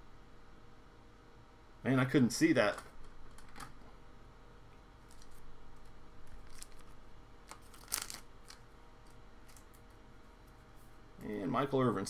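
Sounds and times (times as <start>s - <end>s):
plastic card sleeve rustling: 5.0s - 9.9s.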